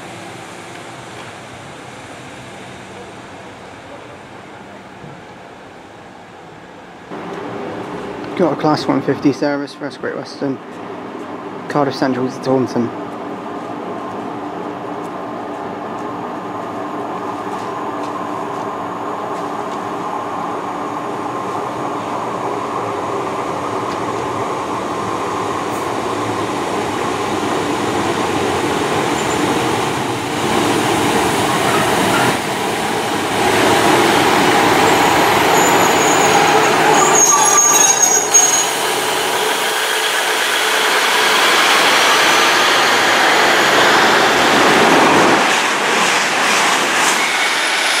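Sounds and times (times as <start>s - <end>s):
diesel train engines droning: 0.0s - 48.0s
high squeal: 34.8s - 43.8s, 47.0s - 48.0s.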